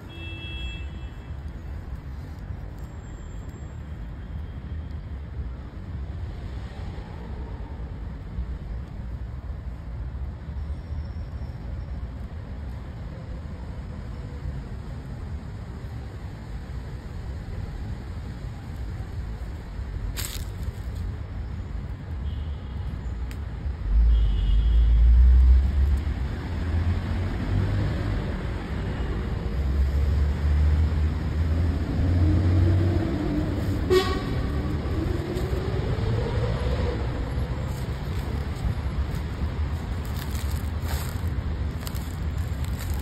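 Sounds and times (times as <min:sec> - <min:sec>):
rumble of passing vehicles: 0:00.0 - 0:43.0
short horn toot: 0:33.7 - 0:34.5.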